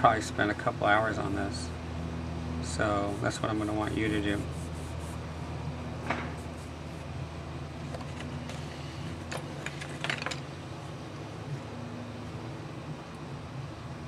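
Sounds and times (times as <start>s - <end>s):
steady low hum: 0.0s - 14.0s
charcoal scratching on paper: 3.0s - 5.3s, 6.3s - 7.1s.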